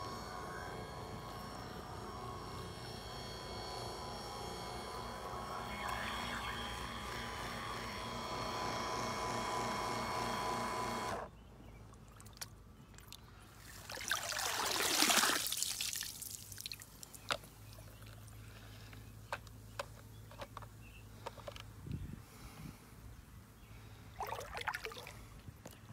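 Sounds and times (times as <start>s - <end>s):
vacuum motor humming: 0.0s - 11.3s
water pouring out: 13.6s - 17.1s.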